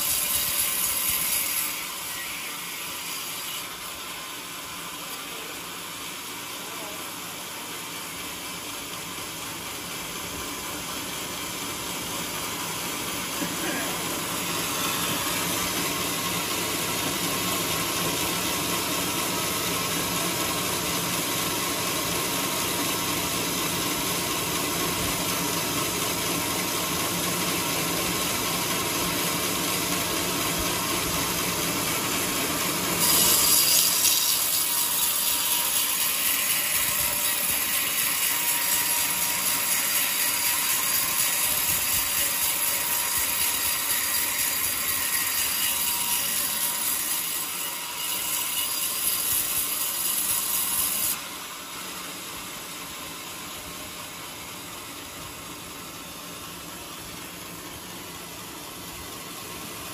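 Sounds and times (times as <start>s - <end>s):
band saw running: 0.0s - 59.9s
blade hissing into wood: 32.8s - 35.2s.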